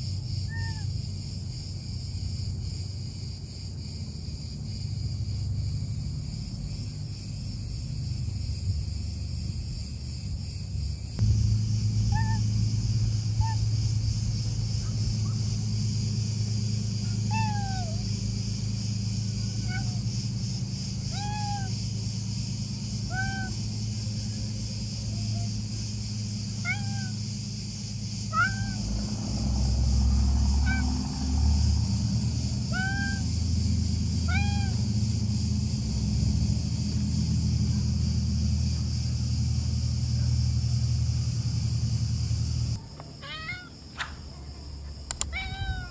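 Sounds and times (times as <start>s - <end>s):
steady low hum: 0.0s - 45.9s
cat meowing: 17.3s - 18.0s, 19.6s - 20.0s, 21.1s - 21.7s, 23.1s - 23.6s, 26.6s - 27.1s, 28.3s - 28.8s, 30.6s - 30.9s, 32.7s - 33.2s, 34.3s - 34.8s, 43.2s - 43.7s, 45.2s - 45.9s.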